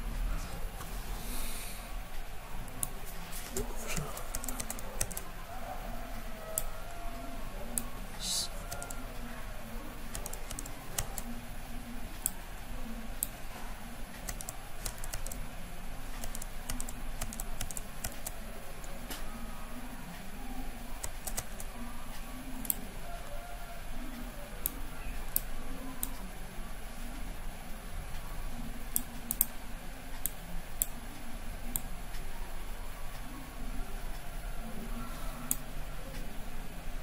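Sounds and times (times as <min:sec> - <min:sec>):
low steady hum: 0:00.0 - 0:37.0
mouse and keyboard clicks: 0:02.8 - 0:05.3, 0:10.1 - 0:11.3, 0:14.2 - 0:15.4, 0:16.2 - 0:18.3.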